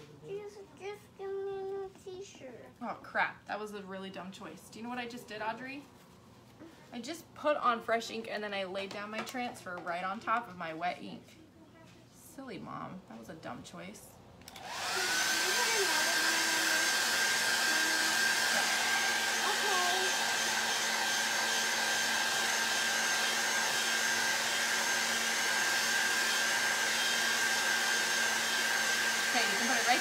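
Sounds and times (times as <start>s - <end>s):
hair dryer whining: 14.4s - 30.0s.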